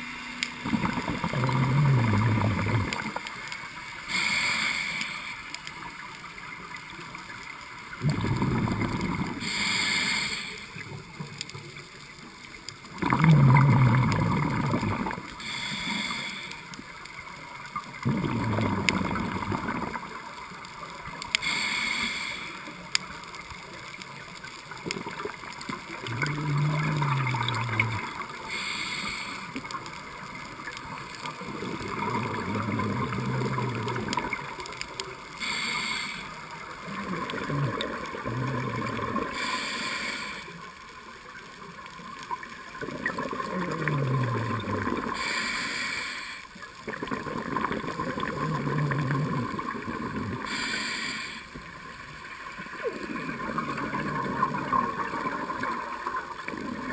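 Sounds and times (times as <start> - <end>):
bubbly exhalation: 0.6 - 3.2, 8.0 - 9.4, 13.0 - 15.2, 18.0 - 20.0, 26.0 - 28.2
diver breathing through regulator: 4.0 - 5.5, 8.2 - 10.8, 15.4 - 16.8, 21.4 - 22.8, 26.2 - 29.7, 35.3 - 36.5, 39.2 - 40.6, 45.0 - 46.6, 50.4 - 51.6.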